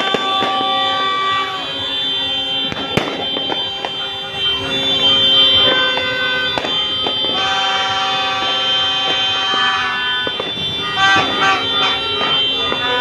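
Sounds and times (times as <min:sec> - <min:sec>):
firecracker cracks: 0:00.0 - 0:04.2, 0:05.6 - 0:13.0
horns blasting: 0:00.0 - 0:13.0.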